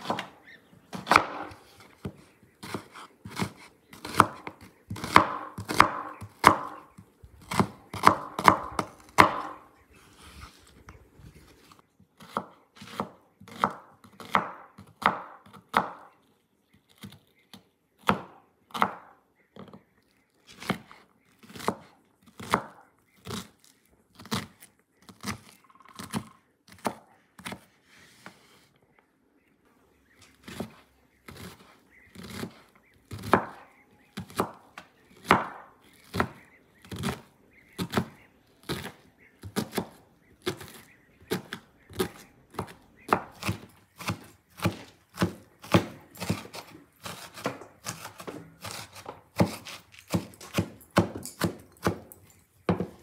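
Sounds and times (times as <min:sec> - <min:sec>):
knife chopping onion on wooden board: 0:00.0 - 0:06.8, 0:07.4 - 0:09.6, 0:12.2 - 0:16.1, 0:18.0 - 0:19.7, 0:20.6 - 0:23.5, 0:30.4 - 0:34.6, 0:35.2 - 0:52.1.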